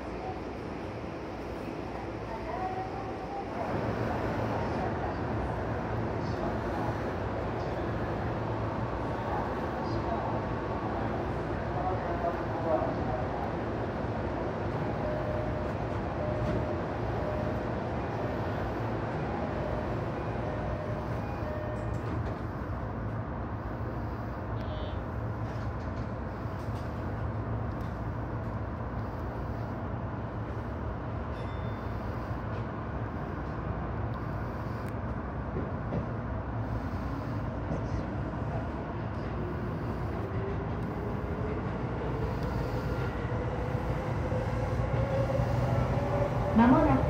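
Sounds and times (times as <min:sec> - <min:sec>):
electric train equipment hum: 0:13.0 - 0:47.0.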